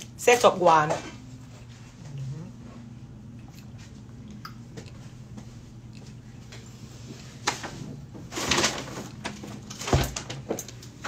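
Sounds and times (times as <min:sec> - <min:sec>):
low hum: 0:01.0 - 0:08.3.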